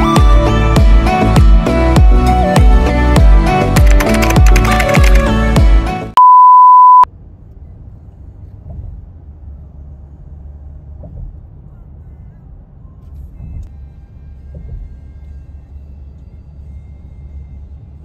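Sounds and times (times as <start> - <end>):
electronic background music: 0.0 - 6.0
single-pitch beep: 6.2 - 7.1
car driving on road: 7.1 - 18.0.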